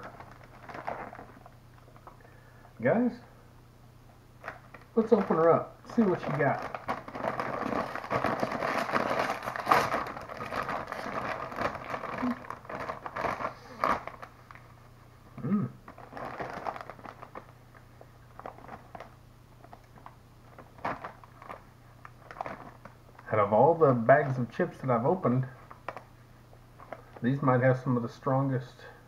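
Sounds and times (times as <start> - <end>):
foil chip bag crinkling: 0.0 - 2.3, 4.4 - 14.8, 15.8 - 23.4, 24.1 - 26.1, 26.7 - 27.4.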